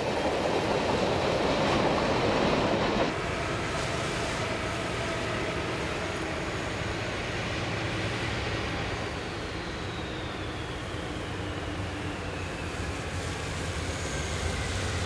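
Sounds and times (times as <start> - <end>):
distant freight train rumble: 0.0 - 15.0.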